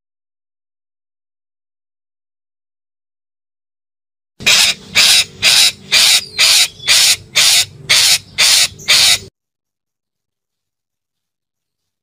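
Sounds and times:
parakeet harsh calls: 0:04.4 - 0:09.3.

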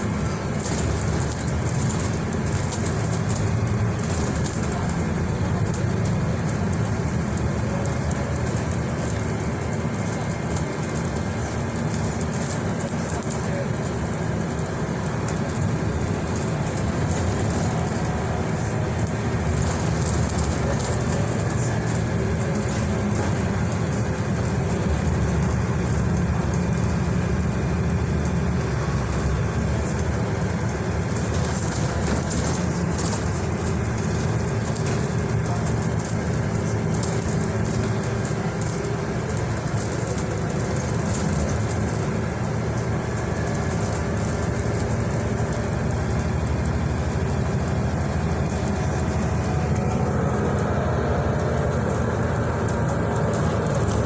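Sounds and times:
bus engine drone: 0:00.0 - 0:54.0
road noise: 0:00.0 - 0:54.0
cabin clicks and rattles: 0:15.3 - 0:23.8, 0:30.8 - 0:42.2, 0:42.9 - 0:45.7, 0:48.4 - 0:54.0.

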